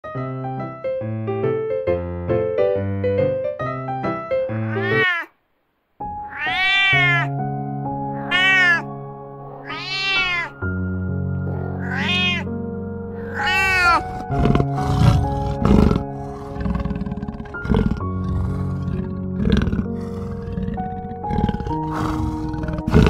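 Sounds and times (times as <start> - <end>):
piano-like intro music: 0.0 - 4.7, 6.0 - 23.0
cat meowing: 4.6 - 5.4, 6.1 - 7.3, 8.2 - 8.9, 9.6 - 10.7, 11.8 - 12.5, 13.2 - 14.4
soft background music: 6.0 - 23.0.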